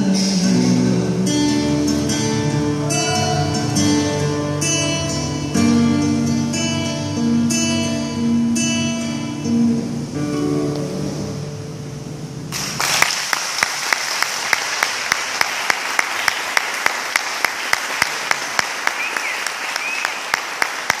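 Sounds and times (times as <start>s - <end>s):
acoustic guitar chord ringing: 0.0s - 12.5s
audience applause: 12.5s - 21.0s
loud sharp claps: 12.5s - 21.0s.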